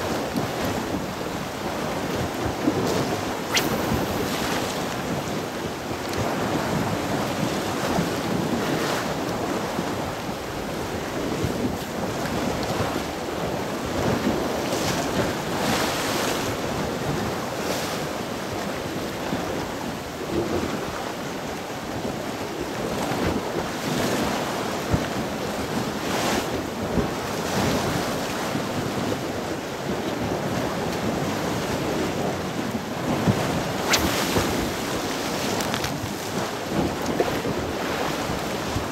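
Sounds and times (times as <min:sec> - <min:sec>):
wind buffeting microphone: 0:00.0 - 0:14.6
waves washing against shore: 0:00.0 - 0:15.0, 0:31.1 - 0:38.9.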